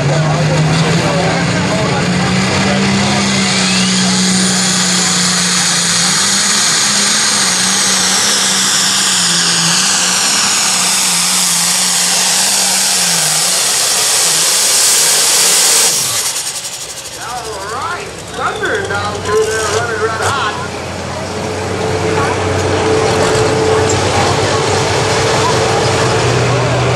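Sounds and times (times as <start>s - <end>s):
diesel tractor engine full throttle: 0.0s - 26.9s
high turbo whine: 0.0s - 26.9s.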